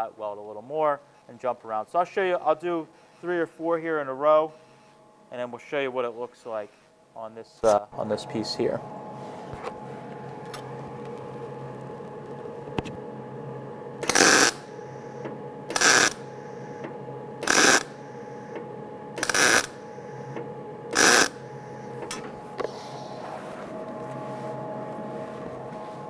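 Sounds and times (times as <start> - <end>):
welding arc bursts: 14.0 - 14.7, 15.7 - 16.2, 17.4 - 18.0, 19.2 - 19.8, 20.9 - 21.4.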